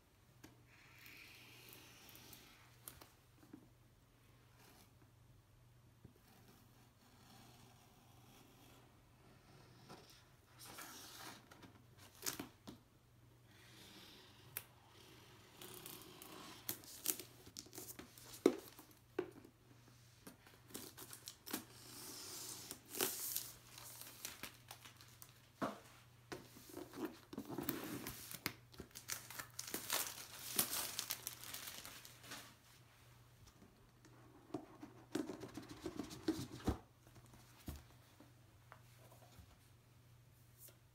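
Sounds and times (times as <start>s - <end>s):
plastic wrap crinkling and tearing: 22.8s - 25.4s, 28.0s - 32.5s.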